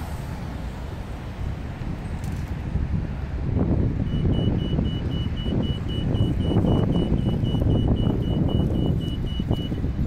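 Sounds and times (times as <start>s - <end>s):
city traffic rumble: 0.0s - 10.0s
high electronic beeping: 4.1s - 9.8s.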